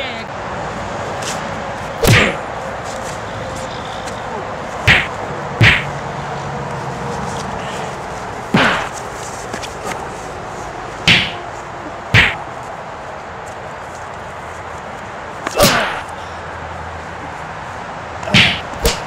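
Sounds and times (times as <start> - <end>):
whip-like swishes: 4.9 - 5.9, 11.1 - 11.4, 12.2 - 12.4, 18.3 - 19.0.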